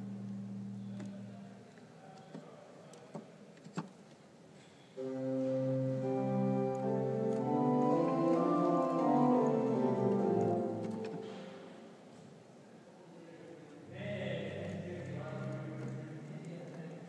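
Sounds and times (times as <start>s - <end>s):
church organ chord: 5.0s - 11.9s.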